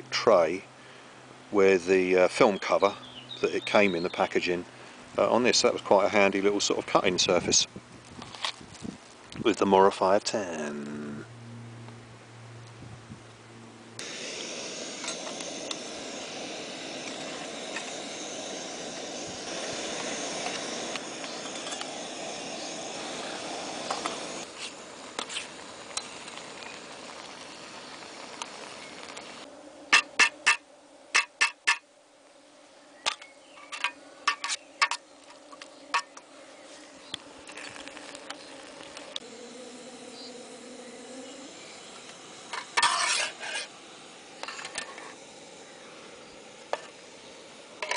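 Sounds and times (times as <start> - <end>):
camp stove burner hissing: 14.0 - 31.8, 33.0 - 47.9.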